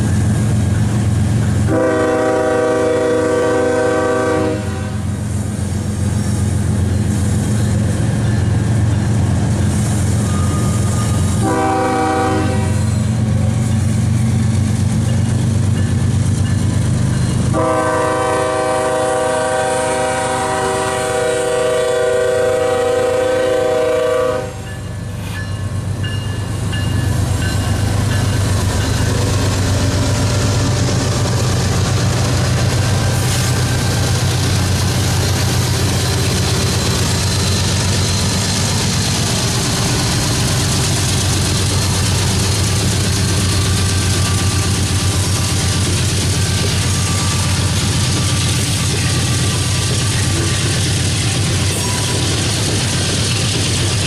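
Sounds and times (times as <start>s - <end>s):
locomotive air horn blasts: 1.7s - 5.1s, 11.4s - 13.1s, 17.5s - 24.8s.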